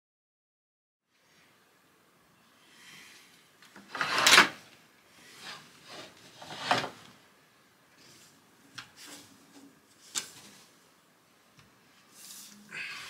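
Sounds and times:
soft fabric rustles: 11.8s - 12.7s
curtain fabric swishing: 12.0s - 12.7s.

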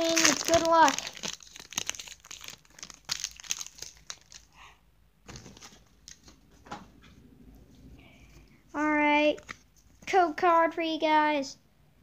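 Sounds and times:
foil wrapper crinkling: 0.0s - 4.6s.

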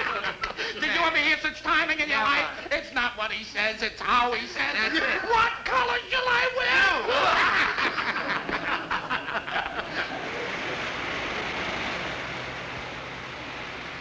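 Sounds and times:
men laughing: 0.0s - 1.1s, 4.6s - 5.5s, 6.8s - 10.9s
traffic passing on road: 6.2s - 14.0s.

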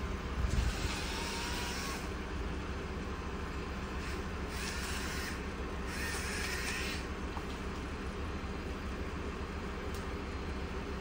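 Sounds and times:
wood chipper engine humming: 0.0s - 11.0s.

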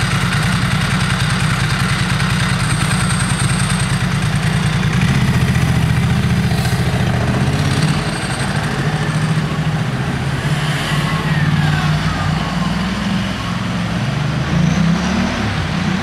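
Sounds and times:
vehicle engines driving past: 4.5s - 16.0s.

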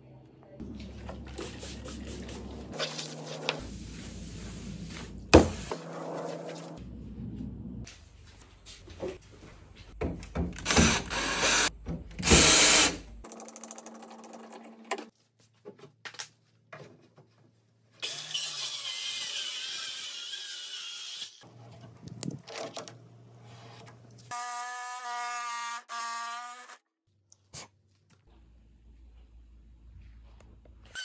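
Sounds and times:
cordless drill running: 10.6s - 13.0s.

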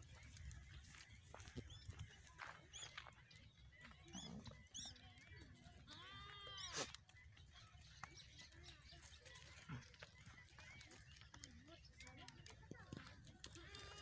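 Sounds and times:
goat bleating: 5.8s - 7.0s, 13.5s - 14.0s.

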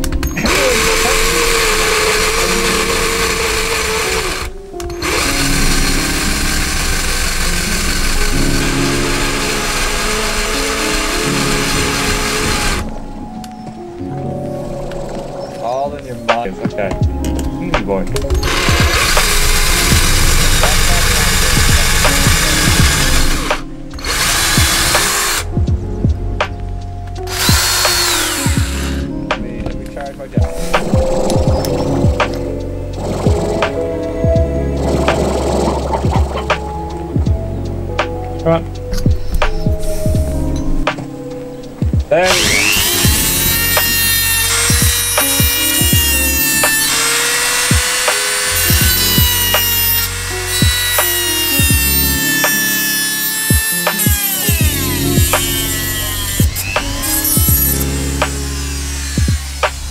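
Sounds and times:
drill boring through metal: 0.0s - 12.9s, 18.3s - 25.5s, 27.2s - 29.1s, 42.3s - 59.9s
background music: 0.0s - 59.9s.

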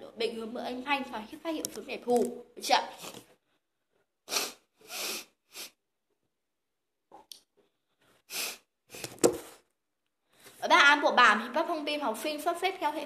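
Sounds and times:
boy breathing and sniffing: 4.2s - 5.8s, 7.6s - 10.6s.

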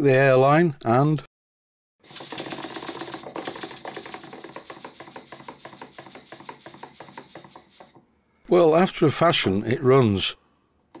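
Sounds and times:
model steam engine clattering: 2.1s - 8.0s.

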